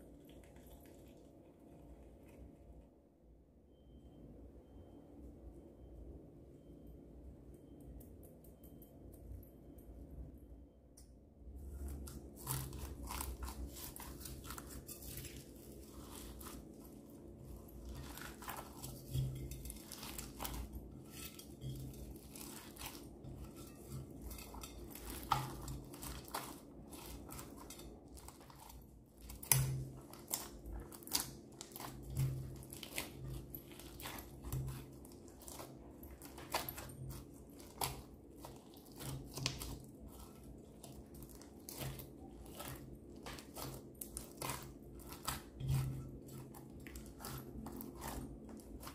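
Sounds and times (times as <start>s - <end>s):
slime squishing with crackles: 11.5s - 48.9s.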